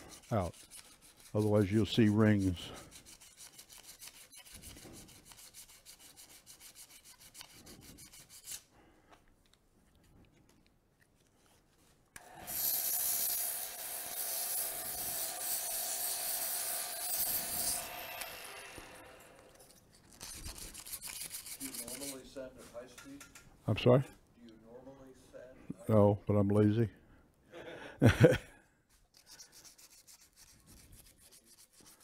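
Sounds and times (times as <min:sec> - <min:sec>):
sanding pad rasping on wood: 0:00.0 - 0:08.6, 0:12.4 - 0:18.7, 0:20.2 - 0:22.3, 0:29.2 - 0:32.0
sanding pad hissing on wood: 0:12.3 - 0:19.1.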